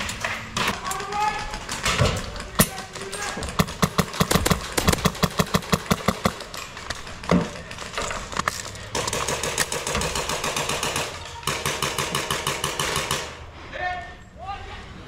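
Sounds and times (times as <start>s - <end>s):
airsoft rifle shots: 0.6s - 6.6s, 8.9s - 13.4s.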